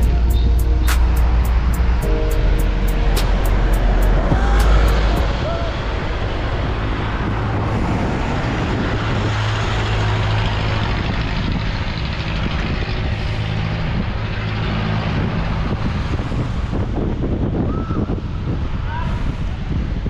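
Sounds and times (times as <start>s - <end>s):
wind rushing: 0.0s - 14.3s
road noise: 0.0s - 20.0s.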